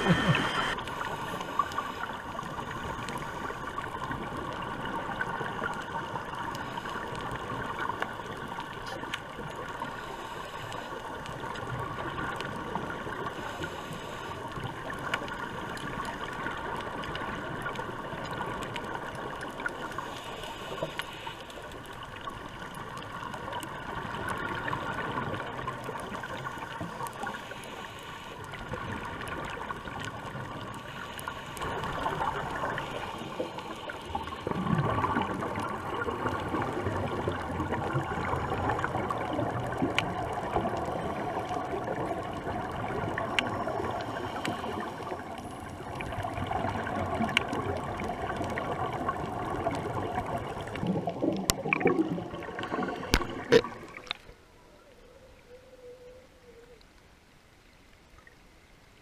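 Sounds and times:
muffled underwater hiss: 0:00.0 - 0:59.0
faint clicks: 0:00.8 - 0:57.1.

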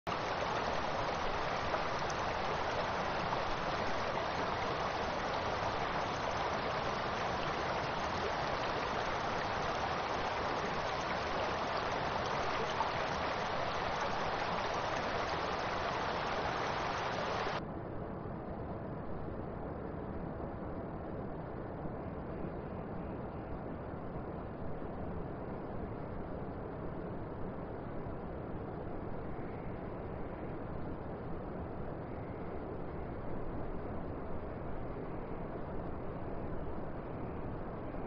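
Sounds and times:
dull hiss: 0:00.1 - 0:17.6
river rushing over gravel: 0:00.1 - 0:17.6.

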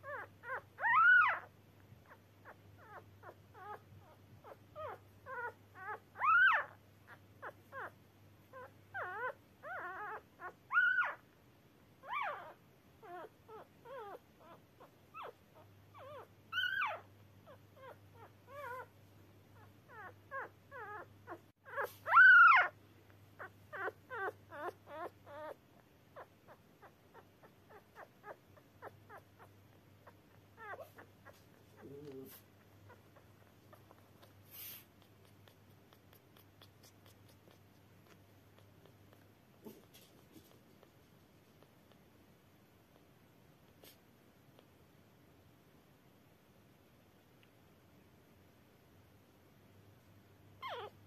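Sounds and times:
puppy crying: 0:00.0 - 0:11.3, 0:12.0 - 0:19.0, 0:19.6 - 0:22.8, 0:23.4 - 0:40.0, 0:50.6 - 0:51.0
puppy squeaking and whimpering: 0:00.0 - 0:11.3, 0:12.0 - 0:40.8, 0:50.6 - 0:51.0.

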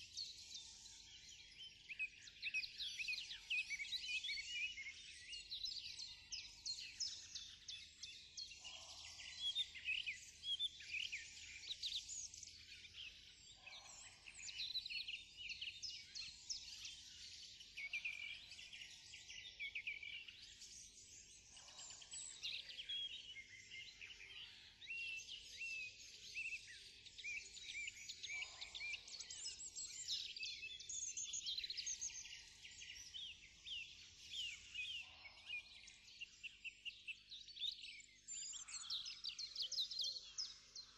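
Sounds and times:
songbirds chirping: 0:00.0 - 0:40.9.

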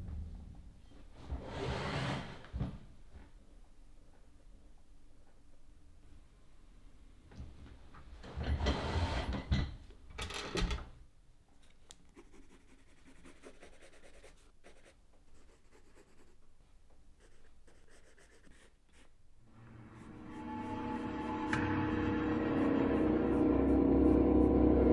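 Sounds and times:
pencil sketching on paper: 0:12.1 - 0:16.4, 0:17.2 - 0:19.2, 0:19.8 - 0:21.6.

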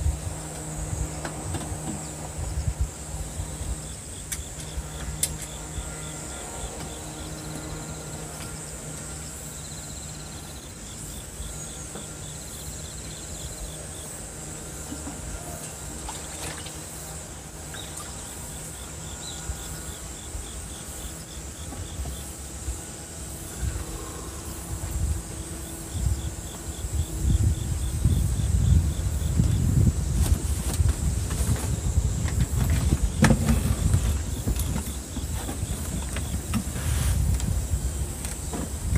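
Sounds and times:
insects chirping: 0:00.0 - 0:38.9
outdoor background noise: 0:00.0 - 0:38.9
low rumbling bumps: 0:23.5 - 0:38.9.

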